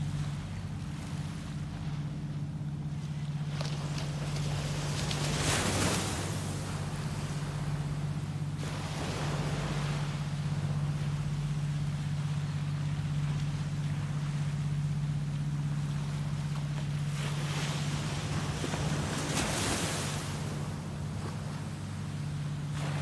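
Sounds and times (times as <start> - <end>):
steady low hum: 0.0 - 23.0
waves washing up a beach: 4.4 - 13.9, 14.5 - 23.0.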